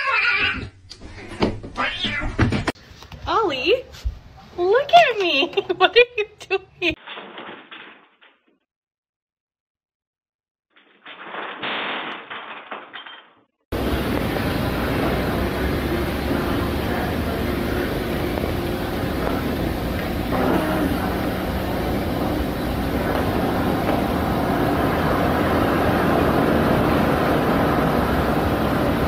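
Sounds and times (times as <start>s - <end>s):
low rumbling noise: 13.7s - 29.0s
short falling voice-like sound: 20.3s - 21.5s.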